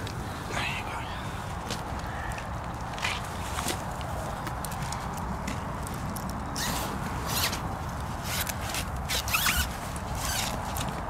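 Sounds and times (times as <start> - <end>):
zip rasping: 6.6 - 11.0.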